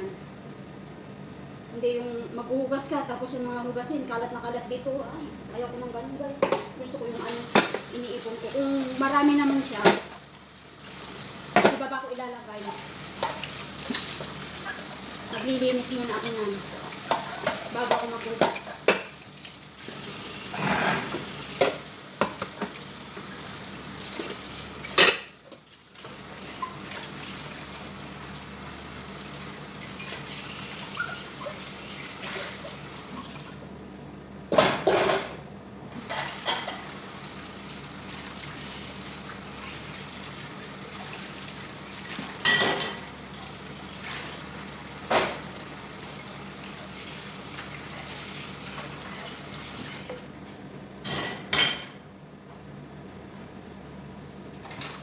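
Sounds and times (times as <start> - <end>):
dishes clinking and clattering: 24.9 - 25.4, 36.0 - 36.9, 42.0 - 43.1, 51.0 - 52.0.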